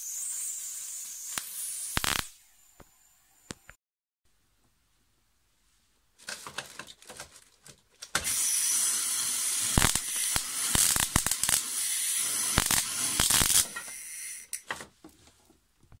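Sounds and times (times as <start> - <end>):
crackling hiss of arcing: 0.0 - 2.4, 8.2 - 14.6
electric arc snaps: 0.0 - 2.4, 8.2 - 14.6.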